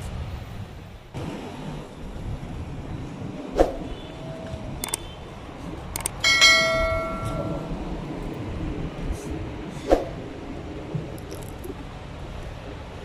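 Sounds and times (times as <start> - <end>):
sharp clicks: 4.8 - 5.1, 5.9 - 6.2
bright bell ding: 6.2 - 7.7.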